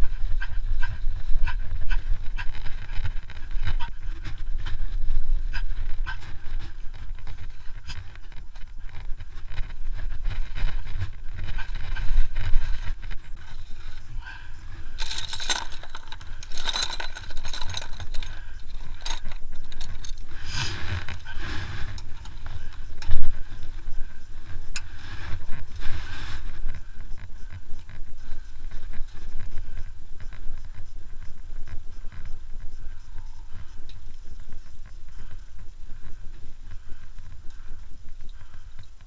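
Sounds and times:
metal wrenches clinking in case: 0:15.0 - 0:20.2.

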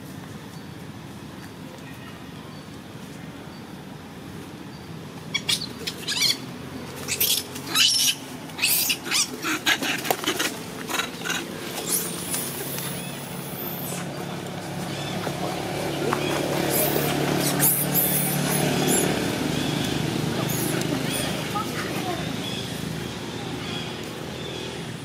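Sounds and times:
monkeys squealing: 0:05.3 - 0:22.6.

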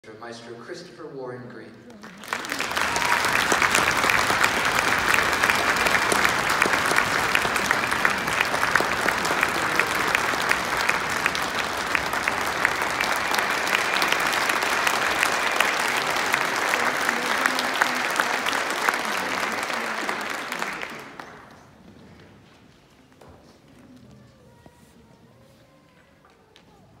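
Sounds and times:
large audience applauding: 0:01.9 - 0:21.8.

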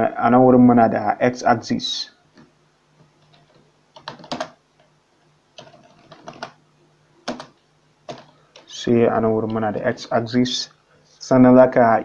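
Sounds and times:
keyboard keys tapping: 0:03.2 - 0:04.6, 0:05.6 - 0:06.6, 0:07.2 - 0:08.7.

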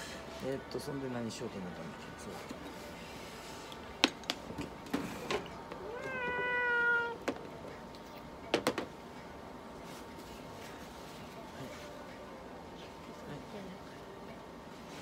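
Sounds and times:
cat meowing: 0:05.8 - 0:07.2.

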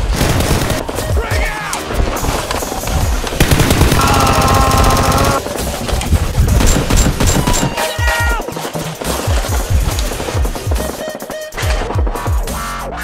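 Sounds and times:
rapid machine-gun fire: 0:00.0 - 0:01.1, 0:03.4 - 0:05.8, 0:06.4 - 0:07.7.

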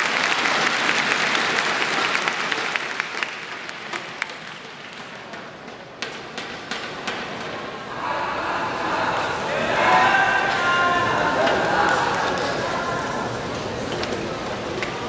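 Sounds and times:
spectators applauding: 0:00.0 - 0:05.3, 0:08.4 - 0:13.5.

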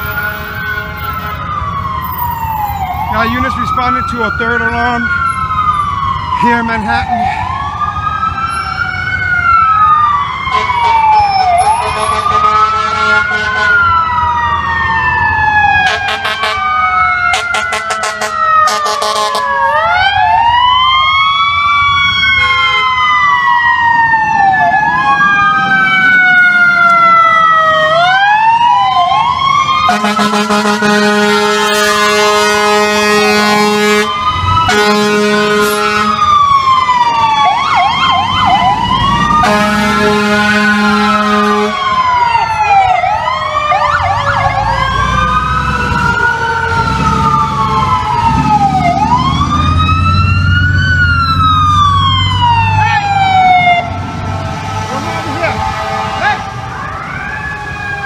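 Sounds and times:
fire truck air horn blasts: 0:00.0 - 0:01.4, 0:10.5 - 0:13.9, 0:15.8 - 0:16.7, 0:17.3 - 0:19.5, 0:22.4 - 0:23.0, 0:29.8 - 0:36.3, 0:39.3 - 0:42.0, 0:54.7 - 0:56.6
fire engine sirens wailing: 0:00.0 - 0:58.0.

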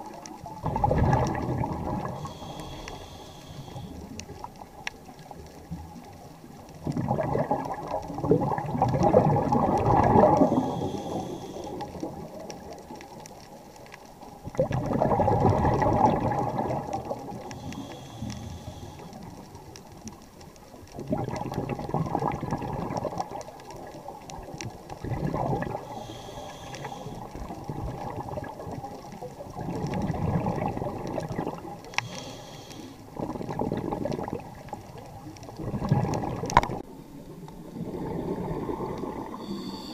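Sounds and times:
bubbling exhaled air underwater: 0:00.0 - 0:13.5, 0:14.4 - 0:19.6, 0:20.7 - 0:39.9
faint regulator hiss: 0:02.0 - 0:05.3, 0:10.3 - 0:14.3, 0:17.1 - 0:19.9, 0:25.8 - 0:27.7, 0:31.6 - 0:33.2, 0:36.9 - 0:39.9.

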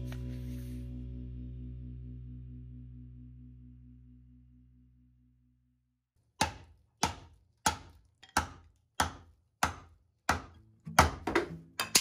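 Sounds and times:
hammer striking steel wedge: 0:06.4 - 0:12.0.

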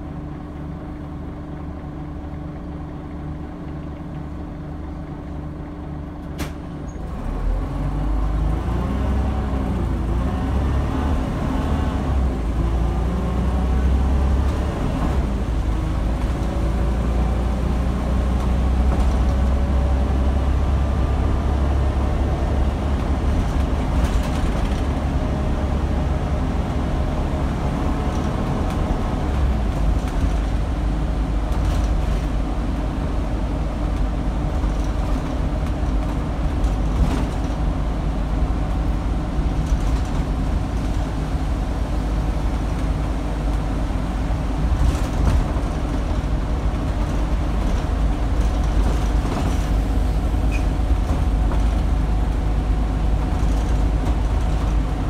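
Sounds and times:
bus diesel engine: 0:00.0 - 0:55.0
sharp click: 0:06.2 - 0:06.6.

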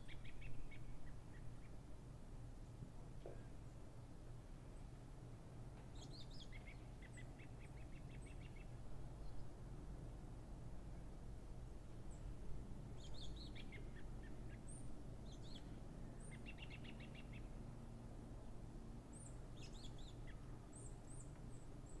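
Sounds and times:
songbirds chirping: 0:00.0 - 0:22.0.

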